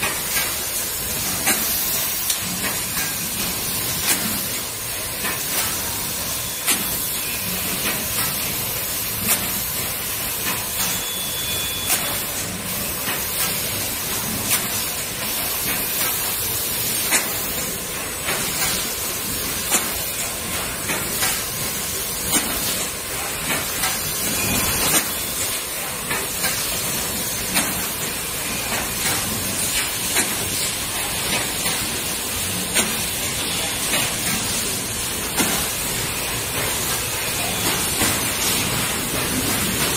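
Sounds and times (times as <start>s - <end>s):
machine clacking: 6.6s - 39.9s.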